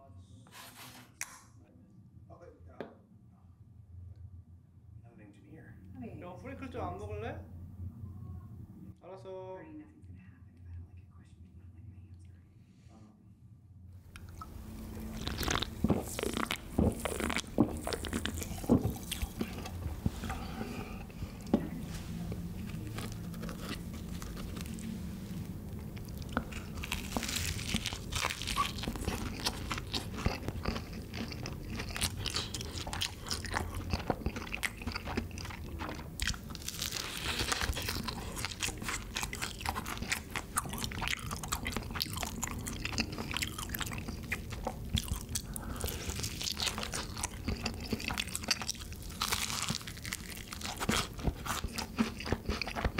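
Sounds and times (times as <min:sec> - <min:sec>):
crunching fried chicken: 0:14.2 - 0:21.4, 0:22.6 - 0:52.9.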